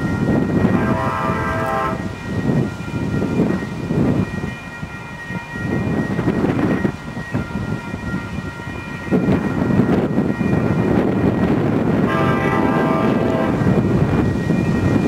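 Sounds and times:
train horn blast: 0.7s - 2.1s, 12.0s - 13.8s.

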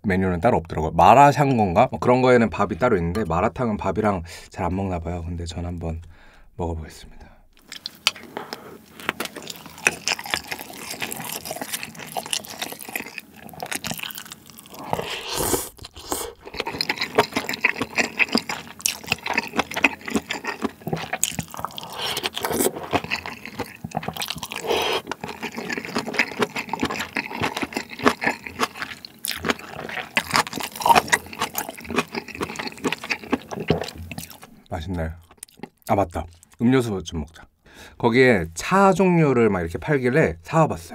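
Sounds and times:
wet chewing and slurping: 7.6s - 36.6s.

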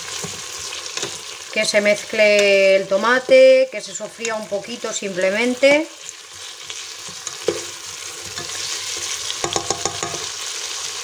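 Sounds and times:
food sizzling in hot oil: 0.0s - 11.0s
spoon stirring and scraping: 0.1s - 1.4s, 6.3s - 10.5s
spoon clicking against pot: 9.4s - 10.2s.

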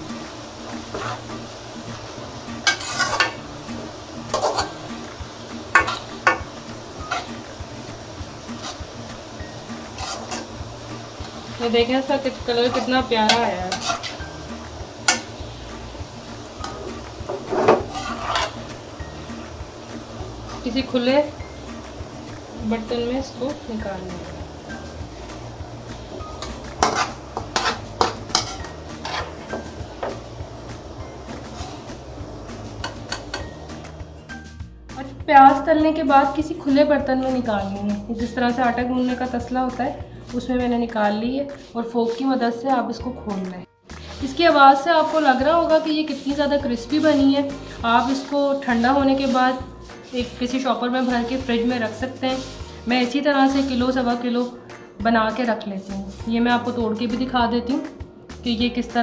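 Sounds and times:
onions sizzling in oil: 0.0s - 59.0s
spoon scraping metal pan: 0.8s - 1.5s, 2.4s - 34.6s, 44.0s - 54.6s.

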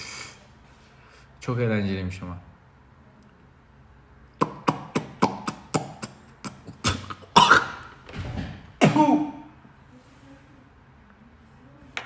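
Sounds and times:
man coughing: 6.4s - 7.9s, 8.8s - 9.5s.

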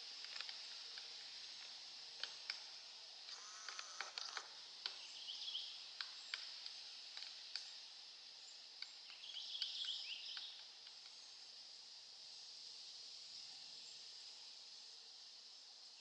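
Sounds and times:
bird twittering faintly: 8.4s - 11.4s.

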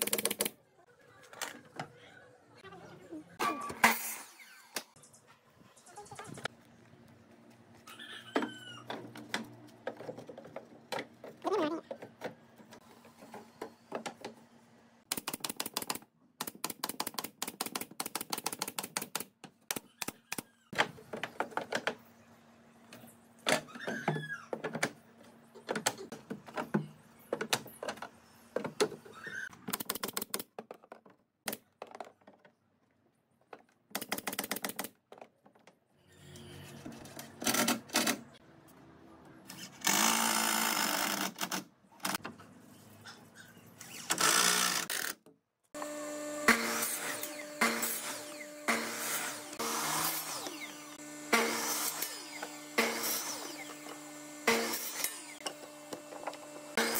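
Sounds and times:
power tool whirring: 39.5s - 42.2s, 43.8s - 45.2s, 45.8s - 56.9s.

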